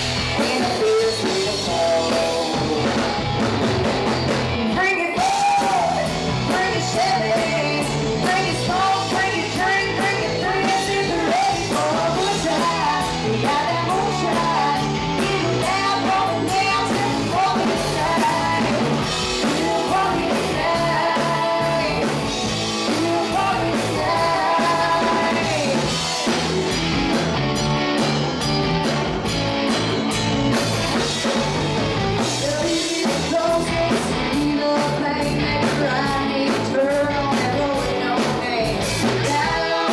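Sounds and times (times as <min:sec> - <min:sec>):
bass guitar: 0:00.0 - 0:39.9
drum kit: 0:00.0 - 0:39.9
electric guitar: 0:00.0 - 0:39.9
women singing: 0:00.4 - 0:02.5, 0:04.7 - 0:26.0, 0:32.4 - 0:39.9.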